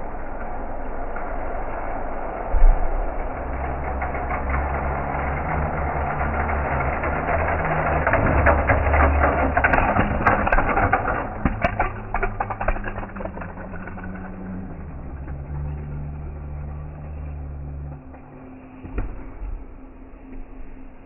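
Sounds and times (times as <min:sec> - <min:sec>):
wheels clicking on track: 0:00.0 - 0:18.8
toy cars rolling on plastic track: 0:02.6 - 0:18.5.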